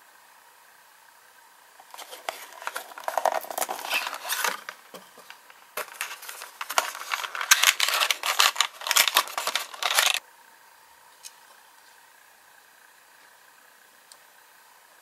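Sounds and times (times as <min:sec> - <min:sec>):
packaging crinkling and clicking: 0:01.8 - 0:10.2.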